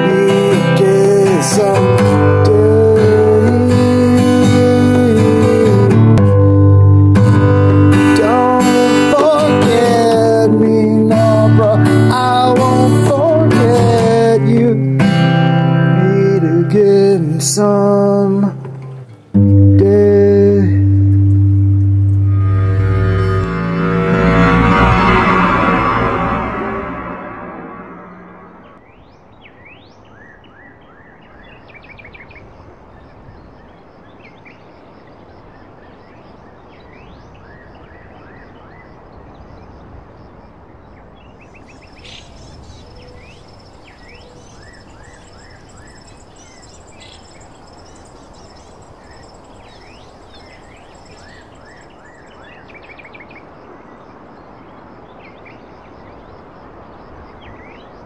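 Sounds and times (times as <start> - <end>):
high steady trill: 19.4 - 28.8
small birds chirping: 41.4 - 52.8
steady background hiss: 41.4 - 54.8.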